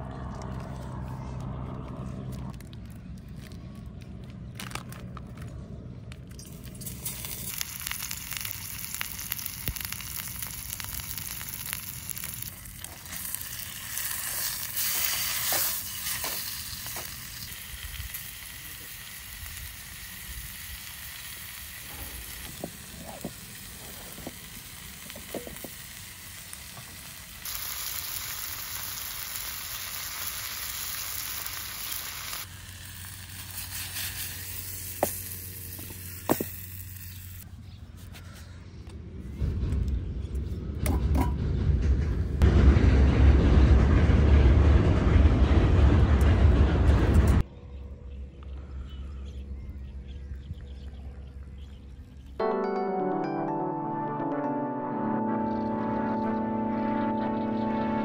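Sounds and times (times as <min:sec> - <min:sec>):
fish sizzling on a grill: 0:06.5 - 0:37.4.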